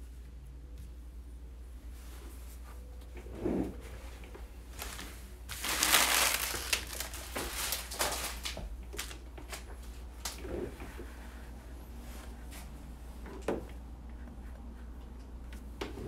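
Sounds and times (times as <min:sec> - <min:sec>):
material crinkling and rustling: 0:03.9 - 0:11.0.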